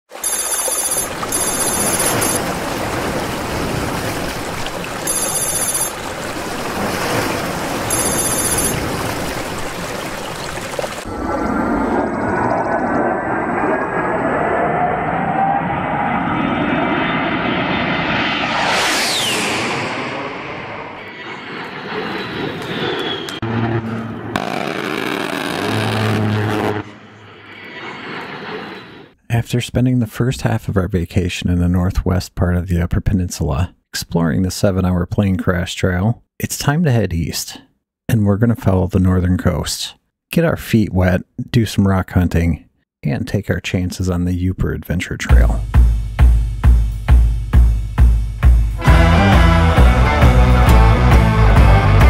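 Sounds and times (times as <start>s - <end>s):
creek water rushing over stones: 0.1s - 11.1s
high pulsing ringing trill: 0.2s - 2.4s, 5.0s - 6.0s, 7.9s - 8.8s
low engine-like drone: 11.1s - 29.2s
loud rushing noise: 17.4s - 22.6s.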